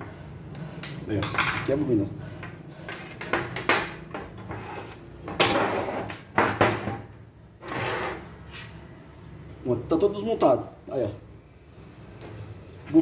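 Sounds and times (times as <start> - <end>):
metal parts knocking on workbench: 5.2 - 7.1.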